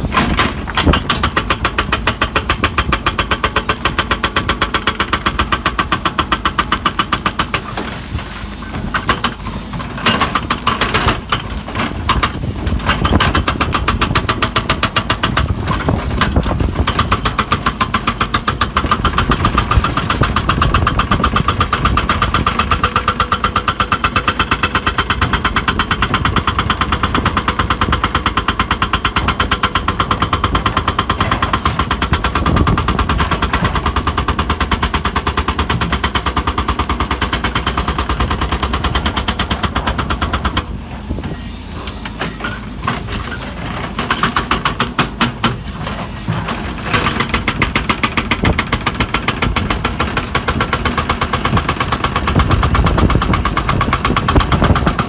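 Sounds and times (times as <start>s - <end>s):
excavator engine running: 0.0s - 55.0s
hydraulic breaker hammering rock: 0.0s - 55.0s.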